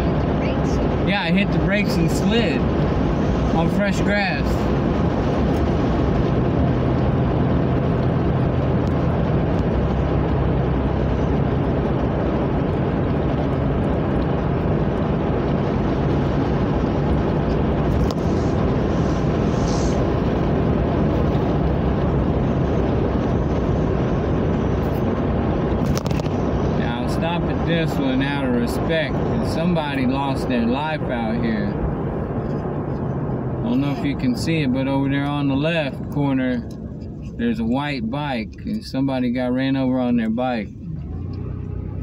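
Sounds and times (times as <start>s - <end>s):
car engine hum: 0.0s - 42.0s.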